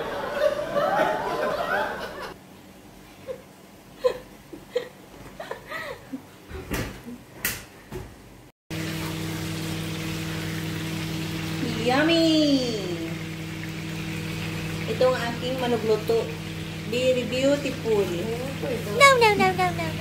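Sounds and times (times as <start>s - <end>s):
person giggling: 3.2s - 6.4s, 19.0s - 20.0s
potatoes sizzling in a pan: 8.7s - 19.8s.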